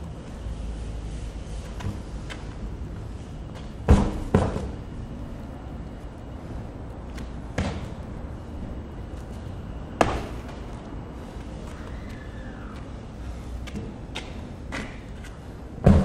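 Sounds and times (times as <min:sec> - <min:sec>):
low outdoor rumble: 0:00.0 - 0:16.0
heavy tire thudding on concrete: 0:03.5 - 0:04.8, 0:07.5 - 0:08.0, 0:10.0 - 0:10.6, 0:15.8 - 0:16.0.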